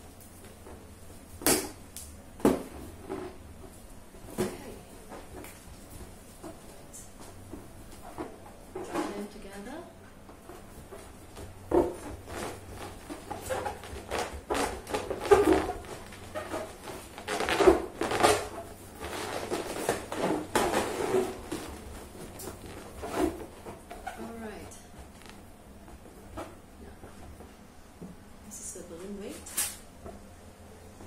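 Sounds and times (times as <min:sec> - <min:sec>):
balloons squeaking and rubbing: 0:12.0 - 0:25.5.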